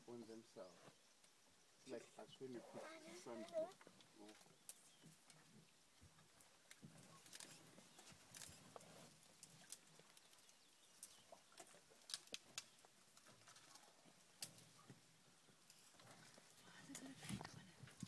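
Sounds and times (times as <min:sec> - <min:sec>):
faint clicks and snaps: 0:09.4 - 0:14.7.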